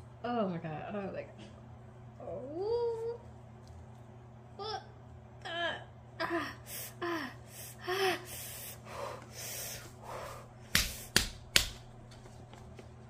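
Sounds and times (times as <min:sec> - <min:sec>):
woman gasping and whimpering: 0:06.2 - 0:09.0
woman breathing hard: 0:06.6 - 0:11.1.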